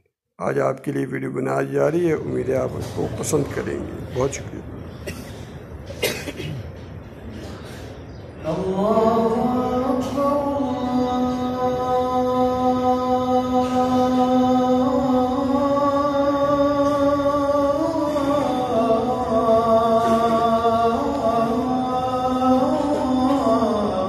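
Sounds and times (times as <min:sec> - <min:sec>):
person chanting in long notes: 0:08.4 - 0:24.0.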